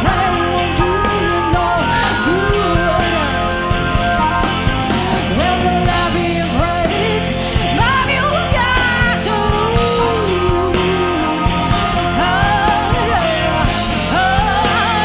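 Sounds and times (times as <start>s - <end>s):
blues-rock band playing: 0.0s - 15.0s.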